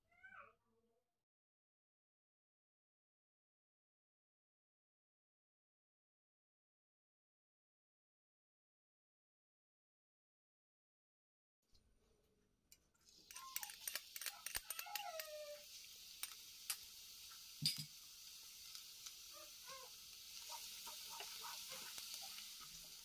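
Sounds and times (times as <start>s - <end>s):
garlic sizzling in hot oil: 13.0s - 23.0s.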